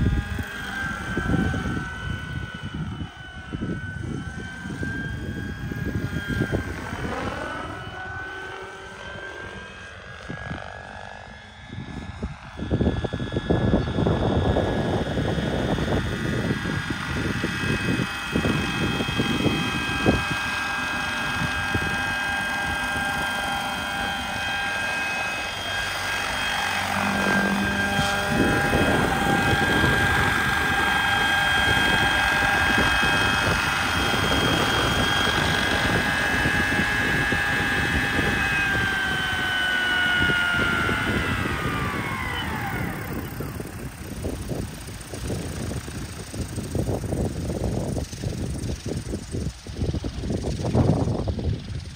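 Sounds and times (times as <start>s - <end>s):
model helicopter whine: 0.0s - 51.9s.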